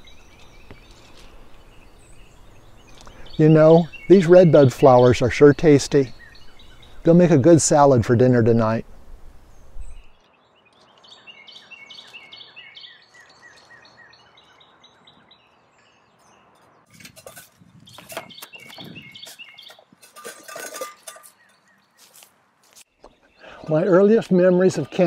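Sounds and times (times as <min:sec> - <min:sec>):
birds chirping: 0:00.0 - 0:25.0
footsteps crunching on leaf litter: 0:21.4 - 0:23.2.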